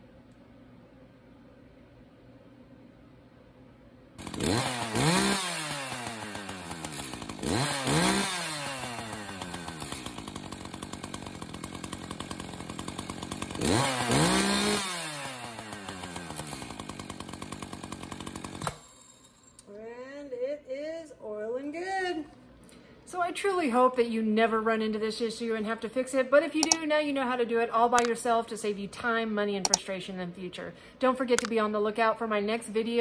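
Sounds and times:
chainsaw revving and idling: 4.2 - 19.2.

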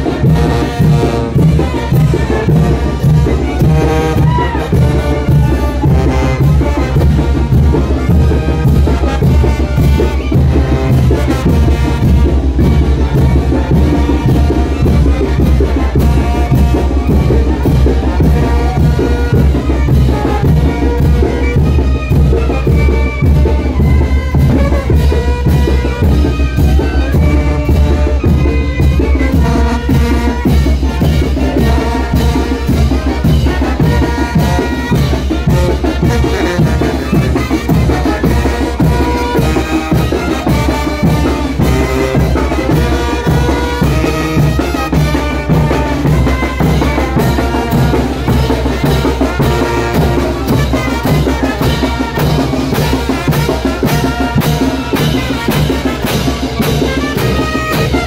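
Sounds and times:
loud brass band music: 0.0 - 58.0.

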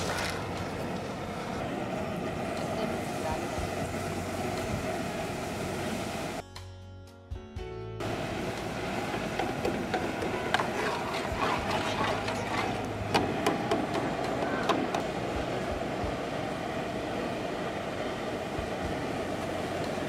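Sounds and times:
batter sizzling in hot oil: 0.0 - 0.5, 8.0 - 13.1.

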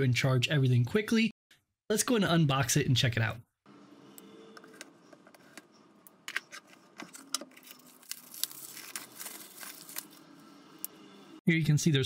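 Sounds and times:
paper wrapping crinkling: 7.0 - 10.3.

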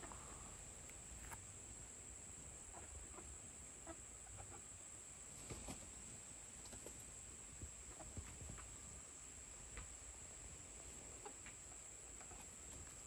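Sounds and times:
hens clucking softly: 0.0 - 1.4, 2.6 - 6.0, 6.6 - 9.1, 10.6 - 13.0
low background hiss: 0.0 - 13.0.

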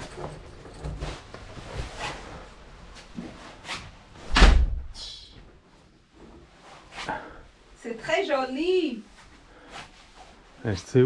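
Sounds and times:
door shutting with heavy thud: 4.2 - 4.9.

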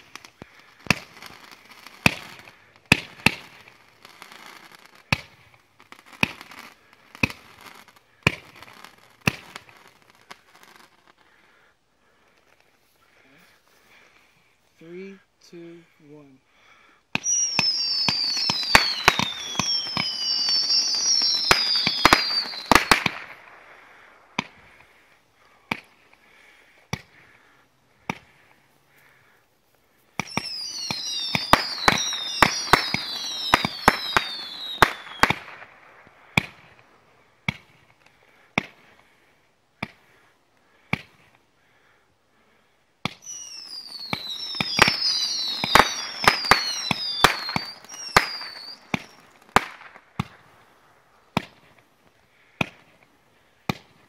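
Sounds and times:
firework bangs: 0.0 - 11.0, 17.1 - 25.0, 30.1 - 39.0, 40.8 - 41.3, 43.0 - 51.8
firework whistles falling in pitch: 17.1 - 23.6, 30.2 - 36.8, 43.0 - 50.4.

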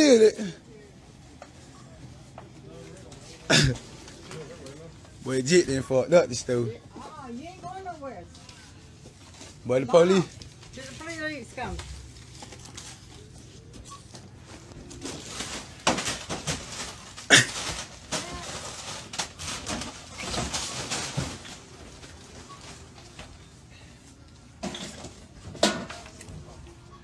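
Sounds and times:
boxed goods crashing to floor: 15.0 - 21.7.

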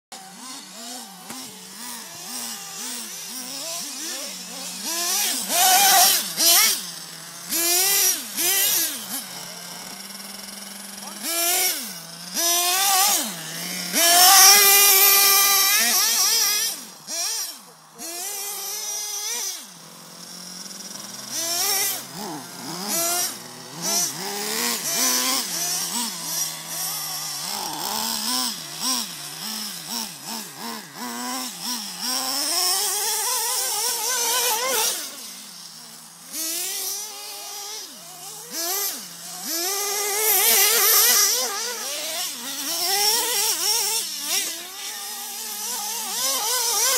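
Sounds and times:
small nitro engine revving: 0.1 - 46.9.

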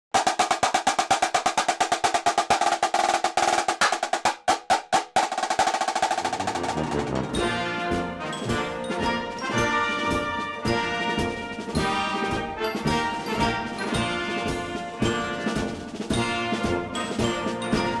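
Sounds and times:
snare drum cadence: 0.1 - 18.0
brass music: 6.1 - 18.0.

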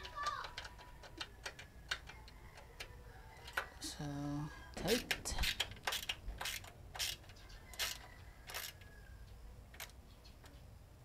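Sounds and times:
ratcheting screwdriver clicking: 5.0 - 8.8.

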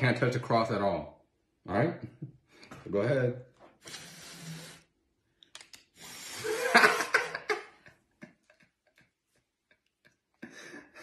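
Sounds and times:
small clicks: 5.4 - 5.9.

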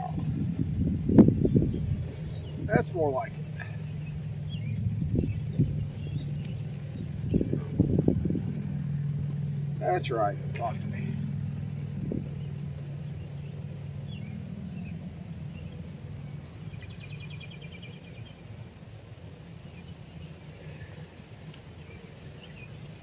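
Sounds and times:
birds chirping: 0.0 - 23.0
low engine hum: 0.0 - 23.0
bird trill: 1.1 - 18.5.

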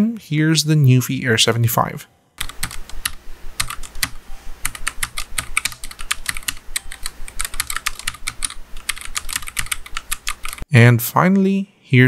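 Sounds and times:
mechanical keyboard typing: 2.4 - 10.7.

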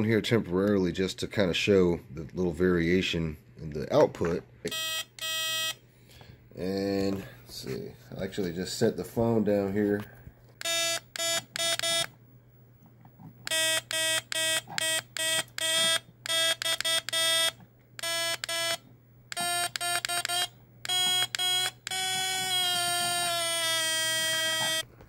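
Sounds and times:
buzzy electronic horn honks: 19.4 - 24.8.

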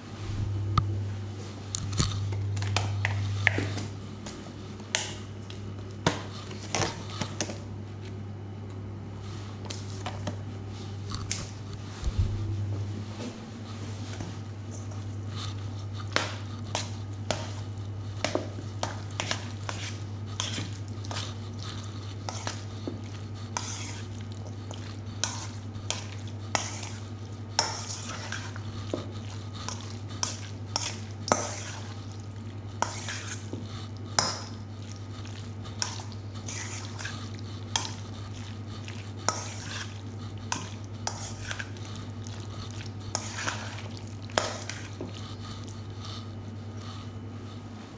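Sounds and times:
low hum: 0.0 - 4.8, 10.8 - 15.9
spoon stirring in metal bowl: 14.0 - 46.3.

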